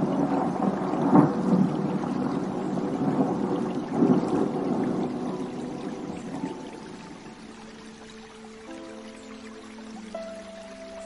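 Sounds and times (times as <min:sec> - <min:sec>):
thunder rumbling: 0:00.0 - 0:07.2
soft piano tones: 0:00.0 - 0:11.0.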